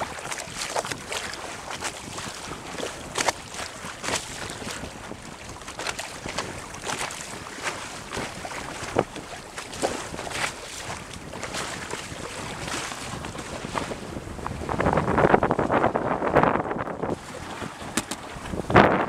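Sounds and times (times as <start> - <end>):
sharp slaps of water: 0.0 - 4.8, 17.8 - 18.4
bow wave rushing along hull: 0.0 - 19.0
wind on microphone: 0.0 - 19.0.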